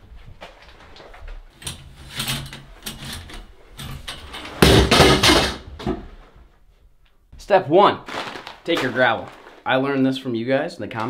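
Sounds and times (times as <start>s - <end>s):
knocks and clatter of handled objects: 0.3s - 6.1s
plastic colander rattle: 8.1s - 9.6s.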